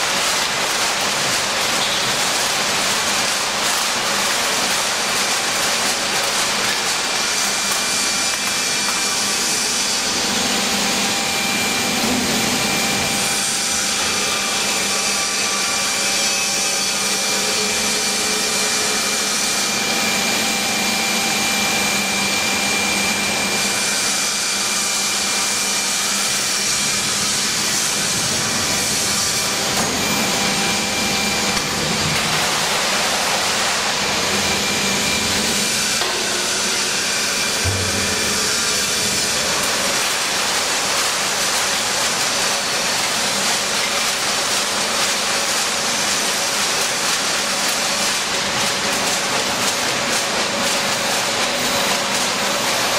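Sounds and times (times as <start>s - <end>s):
can baler machine running: 0.0s - 52.9s
machine whining tones: 7.1s - 41.5s.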